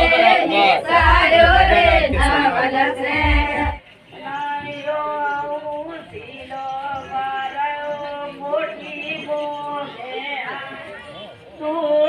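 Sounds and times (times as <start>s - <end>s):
low thumps: 0.0s - 3.8s
loud group singing: 0.0s - 5.2s
women singing slowly: 0.0s - 10.6s.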